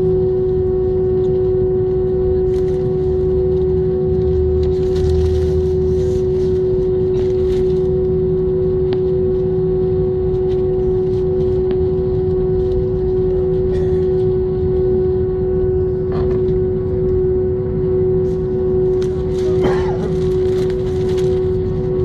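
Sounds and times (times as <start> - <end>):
jet engines idling: 13.4 - 22.0.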